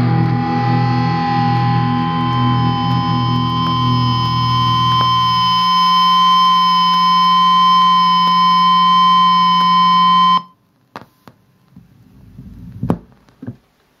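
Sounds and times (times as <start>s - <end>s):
low hum: 0.0s - 10.5s
steady high tone: 0.0s - 10.5s.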